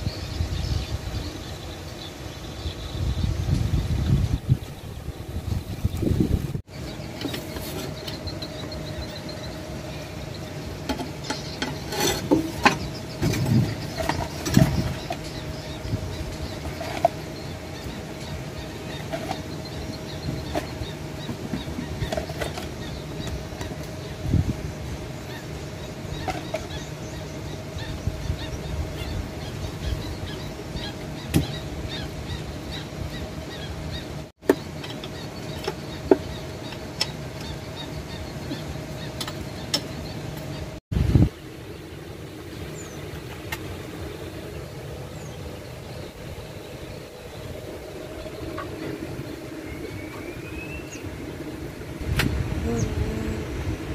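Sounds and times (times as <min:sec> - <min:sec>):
birds chirping: 0:00.0 - 0:53.9
faint hum: 0:00.0 - 0:53.9.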